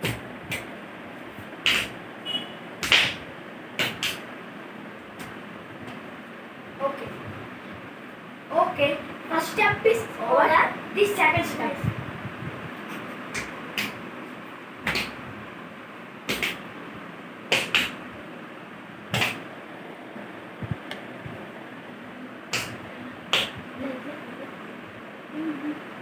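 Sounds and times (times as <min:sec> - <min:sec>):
bare feet slapping on tile floor: 0:00.0 - 0:00.7, 0:01.4 - 0:02.0, 0:02.8 - 0:03.2, 0:03.8 - 0:04.2, 0:05.2 - 0:06.0, 0:13.2 - 0:14.0, 0:14.8 - 0:15.2, 0:16.3 - 0:16.6, 0:17.5 - 0:18.0, 0:19.1 - 0:19.4, 0:22.5 - 0:23.7.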